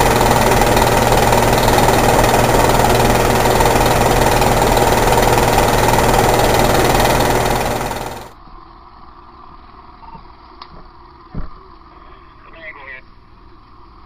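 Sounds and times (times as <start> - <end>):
fire truck engine running: 0.0 - 8.4.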